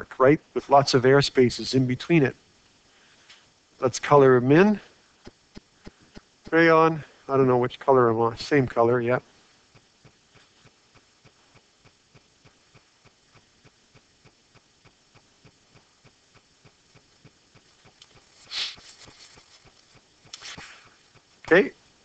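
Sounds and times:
breathy hiss: 0.6 - 21.9
stylus scratching and tapping: 9.7 - 21.3.

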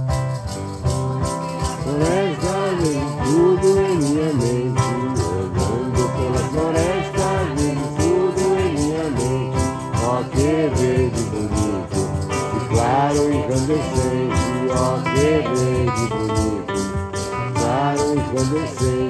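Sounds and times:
acoustic guitar: 0.0 - 19.0
shaken rattle: 0.0 - 19.0
people singing: 1.6 - 19.0.

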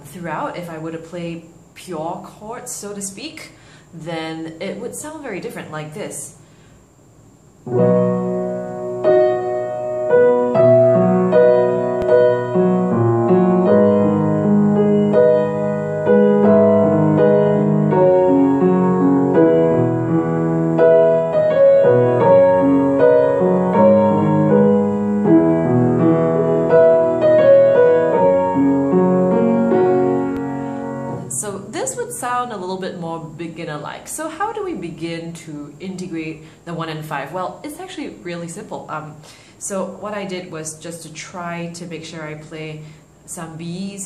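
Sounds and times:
piano block chords: 7.6 - 34.0.

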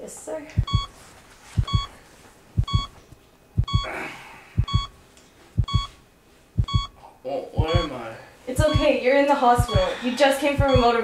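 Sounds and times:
heart-rate monitor beeping: 0.5 - 1.0, 1.6 - 2.0, 2.6 - 3.0, 3.6 - 4.0, 4.6 - 5.0, 5.6 - 6.0, 6.6 - 7.0, 7.6 - 8.0, 8.6 - 9.0, 9.6 - 11.0
heartbeat thumps: 0.5 - 1.0, 1.6 - 2.0, 2.6 - 3.0, 3.6 - 3.9, 4.6 - 5.0, 5.6 - 6.0, 6.6 - 7.0, 7.6 - 7.9, 8.6 - 9.0, 9.6 - 11.0.

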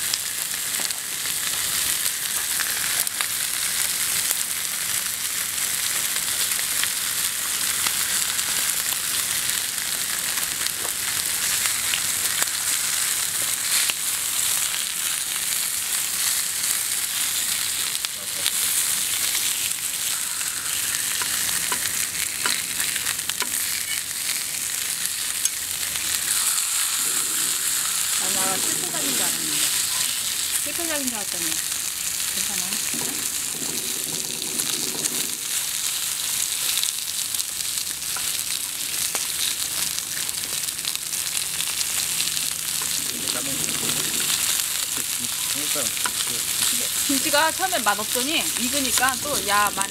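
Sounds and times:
meat sizzling on a griddle: 0.0 - 49.9
cleaver and tongs scraping metal: 20.1 - 24.1.

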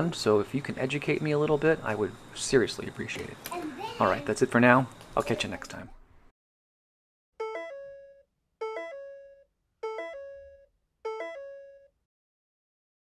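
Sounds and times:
electronic chime jingle: 7.4 - 11.9.

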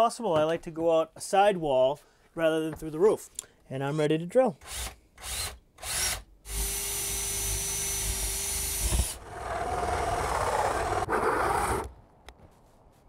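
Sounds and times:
cordless drill boring wood: 4.6 - 11.9
hole saw cutting wood: 4.6 - 11.9.

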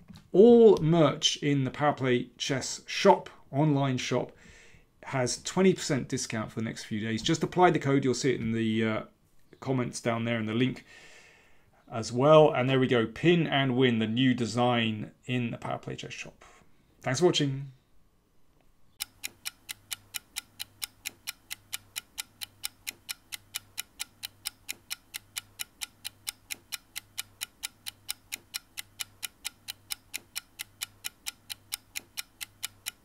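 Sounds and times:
clock-like ticking: 19.0 - 33.0.

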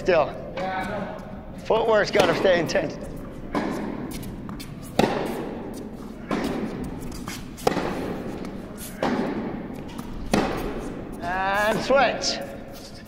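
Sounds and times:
tennis ball knocks echoing: 2.1 - 2.8, 3.4 - 11.3.

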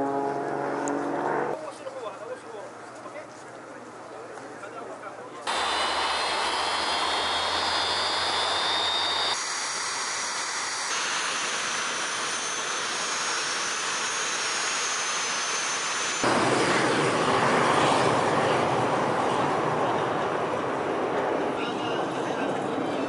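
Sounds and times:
jet engines running: 5.5 - 22.8.

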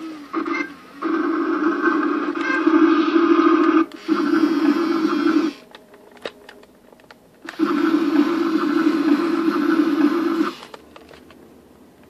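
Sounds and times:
toy electric motor whirring: 7.5 - 10.8.

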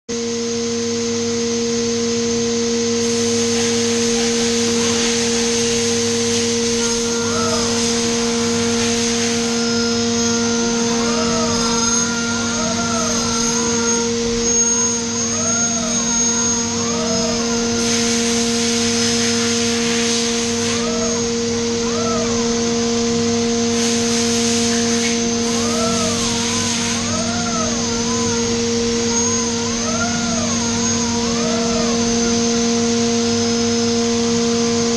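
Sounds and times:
cutter whine rising and falling: 0.1 - 34.9
machine hum: 0.1 - 34.9
coolant hissing: 1.9 - 34.9.

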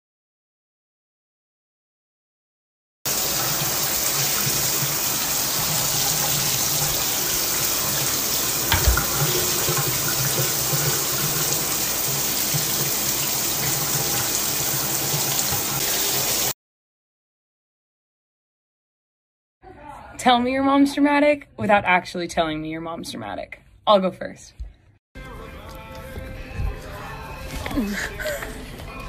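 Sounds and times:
water running in bathtub: 3.1 - 16.6
low thump: 8.7 - 9.3.

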